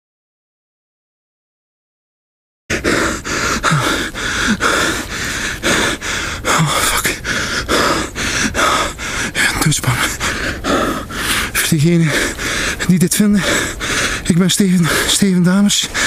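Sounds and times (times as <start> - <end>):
man panting heavily: 2.7 - 16.0
man moaning: 3.6 - 4.8.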